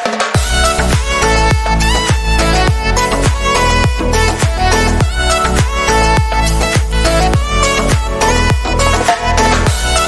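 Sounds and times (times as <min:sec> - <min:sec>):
background music with thumping beat: 0:00.0 - 0:10.0.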